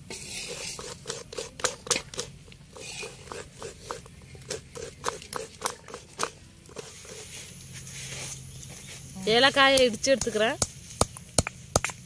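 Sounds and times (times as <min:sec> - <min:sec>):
metal spoon scraping steel bowl: 0:00.1 - 0:08.5.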